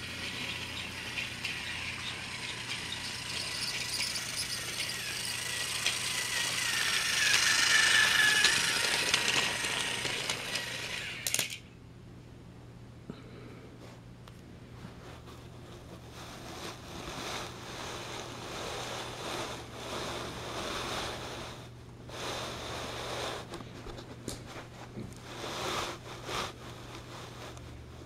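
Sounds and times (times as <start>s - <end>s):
toy train rattling on track: 0.0s - 11.6s.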